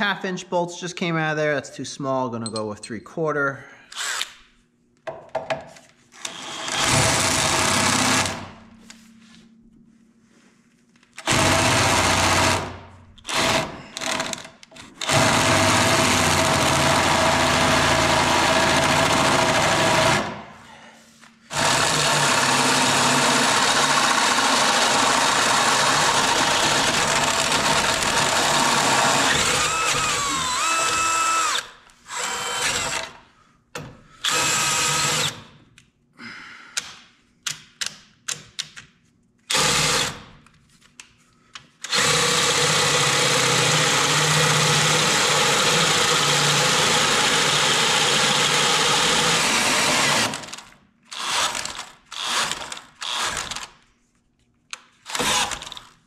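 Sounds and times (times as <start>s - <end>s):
cordless drill boring into steel: 6.2s - 8.3s, 15.0s - 20.3s, 21.5s - 33.1s, 34.2s - 35.4s, 39.5s - 40.2s, 41.9s - 53.6s, 55.1s - 55.8s.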